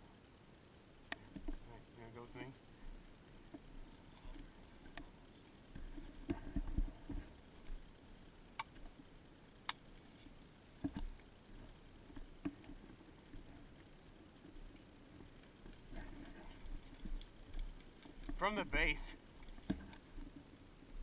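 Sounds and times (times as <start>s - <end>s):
sharp clicks: 8.6s - 8.8s.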